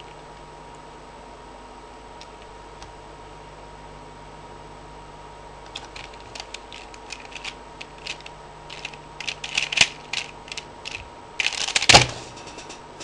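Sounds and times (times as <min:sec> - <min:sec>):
puzzle pieces clicking: 0:05.7 - 0:12.7.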